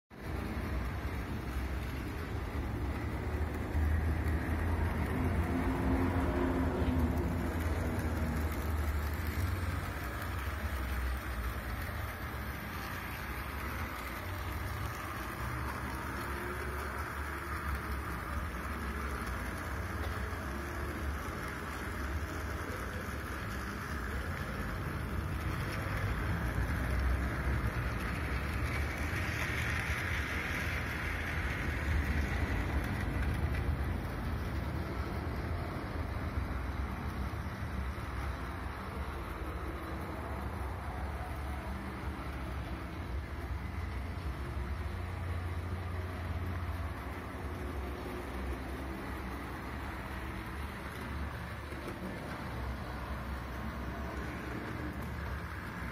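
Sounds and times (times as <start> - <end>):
small electric motor humming: 0.2 - 34.9.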